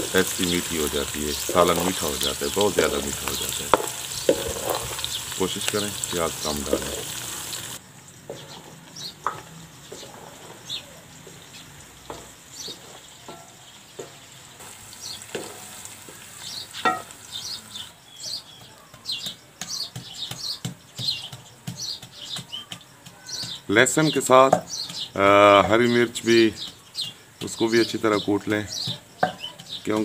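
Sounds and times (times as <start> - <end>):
birds chirping: 0.0 - 30.0
onions sizzling in oil: 0.0 - 30.0
pestle pounding in mortar: 0.2 - 6.9, 18.5 - 30.0.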